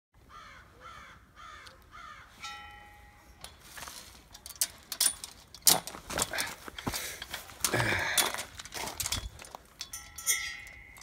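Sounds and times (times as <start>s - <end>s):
crows cawing: 0.2s - 2.4s
gate chain and latch rattling: 3.3s - 11.0s.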